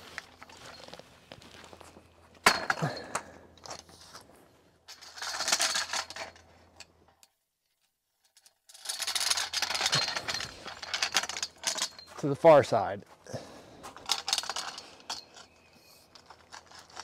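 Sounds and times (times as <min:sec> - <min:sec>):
buckle and pole hardware clinking: 0:04.9 - 0:12.8, 0:13.8 - 0:17.0.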